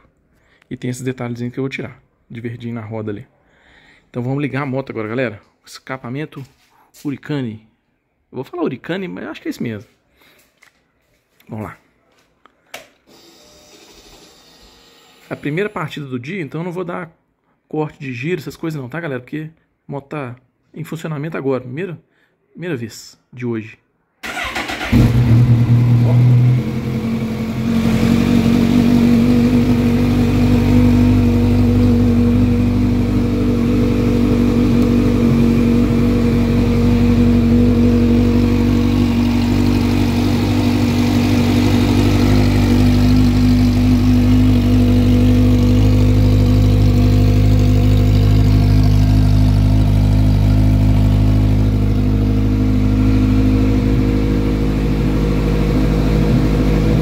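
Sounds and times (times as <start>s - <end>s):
motorcycle engine idling: 28.4s - 57.0s.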